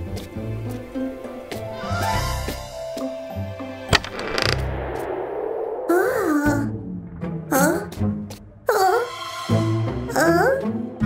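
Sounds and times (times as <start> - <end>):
sharp hit: 3.9 - 7.4.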